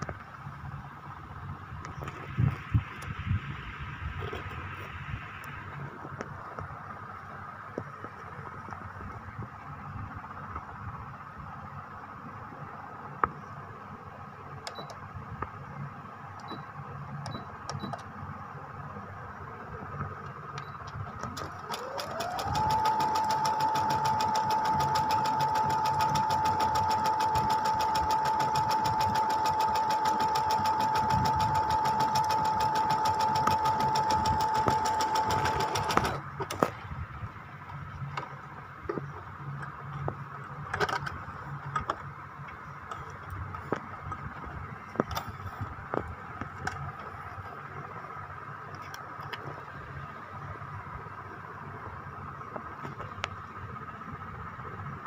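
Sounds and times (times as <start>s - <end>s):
sewing machine stitching: 21.2s - 36.2s.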